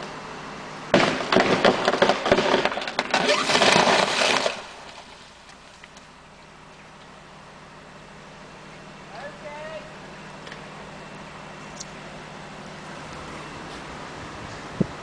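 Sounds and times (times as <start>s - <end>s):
tree cracking and crashing down: 0.9s - 6.1s.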